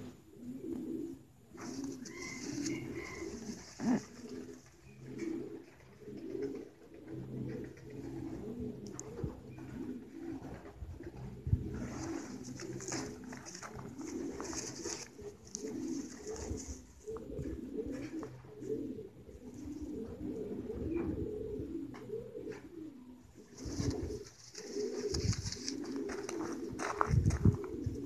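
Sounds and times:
pigeons cooing: 0.0s - 28.0s.

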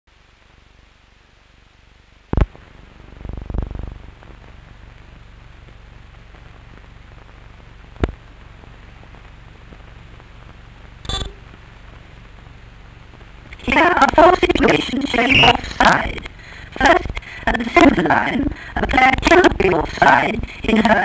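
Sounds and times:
film soundtrack hiss: 0.1s - 21.0s
film pops and crackles: 2.2s - 17.4s.

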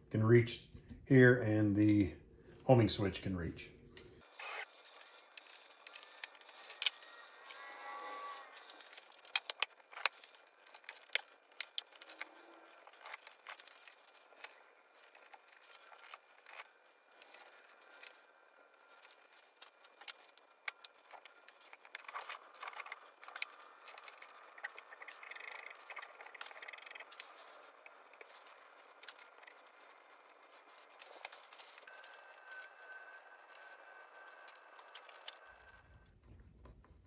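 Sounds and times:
plastic cable chain clicking and rattling: 4.6s - 32.7s.

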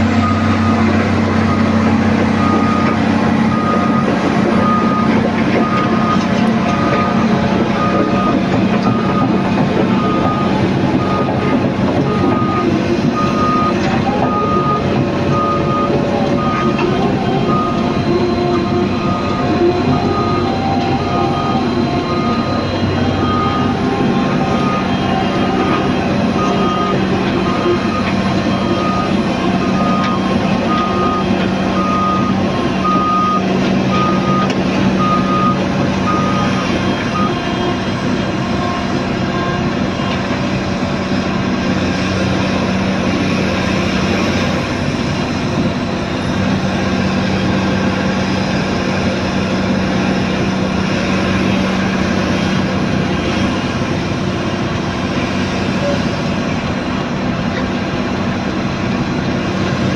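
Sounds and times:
heavy diesel engine: 0.0s - 59.9s
travel alarm beeping: 0.2s - 1.8s, 2.4s - 37.8s.

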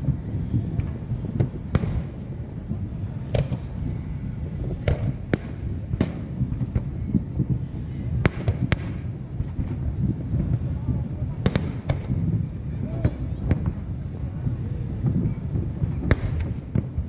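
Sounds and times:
distant firework bangs: 0.0s - 14.0s, 15.0s - 17.0s
steady low rumble: 0.0s - 17.0s.

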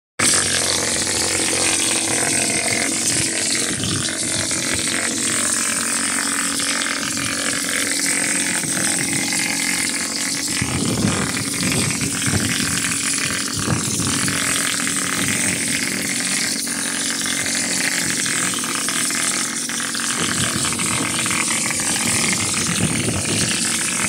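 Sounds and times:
plaster spattering rumble: 0.2s - 24.0s
faint machine hum: 0.3s - 24.0s.

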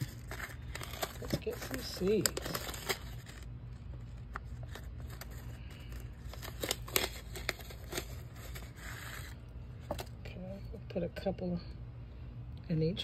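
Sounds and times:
paper packet rustling: 0.0s - 10.1s.

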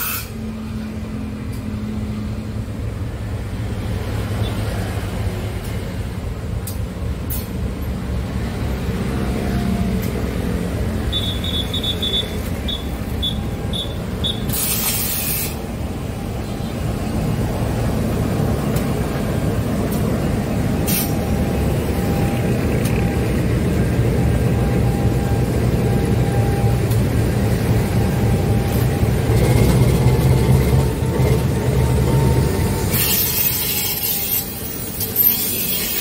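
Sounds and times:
locomotive engine rumbling: 0.0s - 36.0s
air hiss: 14.4s - 15.7s.

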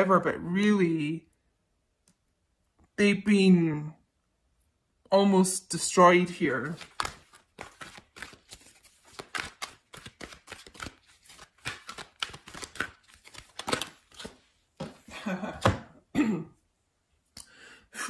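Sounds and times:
cards being shuffled: 6.6s - 15.7s.

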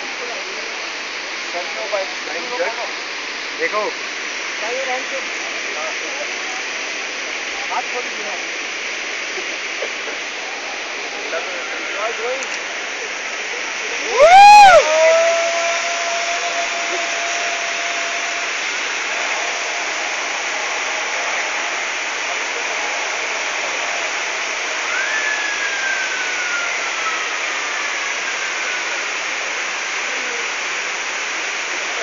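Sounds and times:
flowing water rushing: 0.0s - 32.0s
faint falling whistle-like tone: 24.6s - 30.4s.

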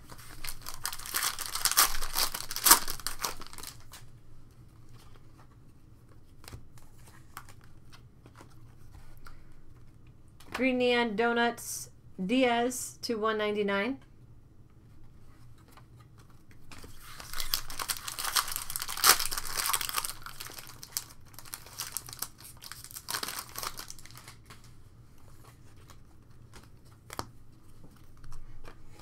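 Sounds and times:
foil wrapper crinkling and tearing: 0.0s - 4.1s, 16.8s - 24.7s.

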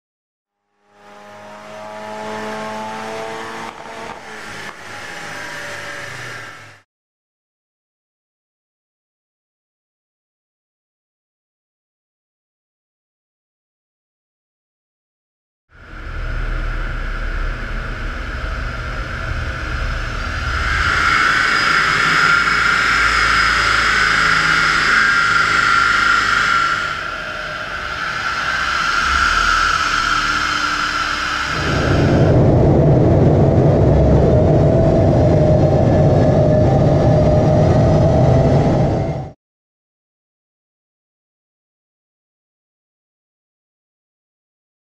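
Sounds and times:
car engine running hard: 0.8s - 6.8s, 15.8s - 37.8s
car engines running hard: 0.8s - 6.8s
high whine: 1.1s - 6.8s, 15.7s - 39.4s.

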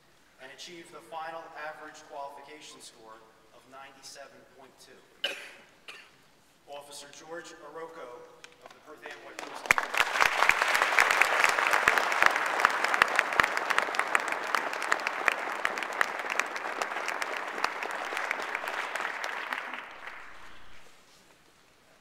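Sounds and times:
audience applauding: 9.1s - 21.0s.

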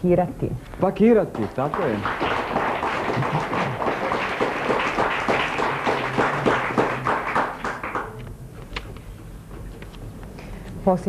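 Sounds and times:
audience applauding: 1.1s - 8.3s.

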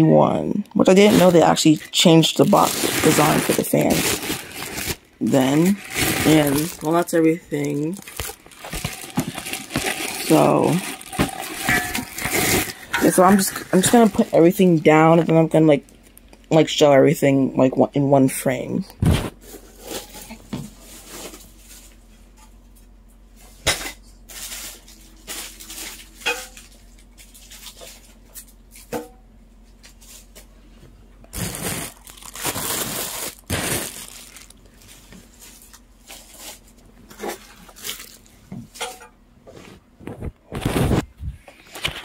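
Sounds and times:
plastic crinkling: 0.8s - 16.4s, 24.3s - 28.5s, 31.3s - 38.4s
packaging rustling: 1.0s - 16.1s, 31.3s - 38.3s
objects knocking and clattering: 8.0s - 14.3s.

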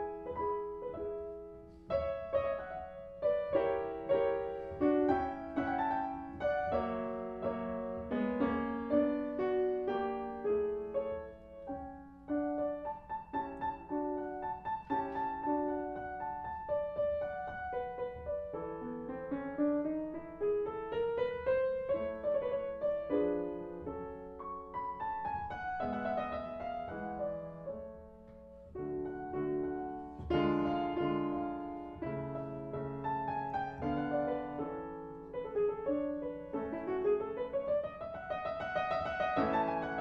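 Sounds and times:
piano music: 0.0s - 40.0s.

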